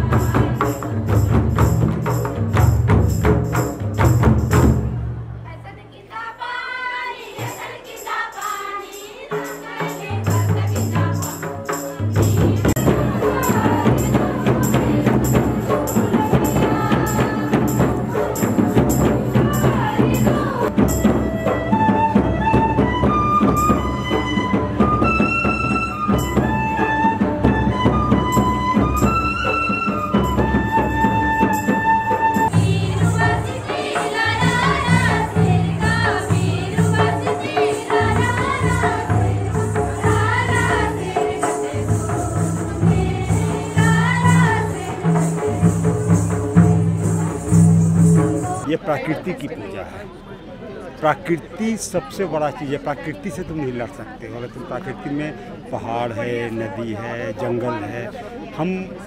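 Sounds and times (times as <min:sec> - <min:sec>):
people singing long notes: 0:00.0 - 0:01.5, 0:06.0 - 0:48.8
jingling percussion: 0:00.0 - 0:05.0, 0:07.1 - 0:49.3
drums keeping a steady beat: 0:00.0 - 0:05.8, 0:07.1 - 0:50.6.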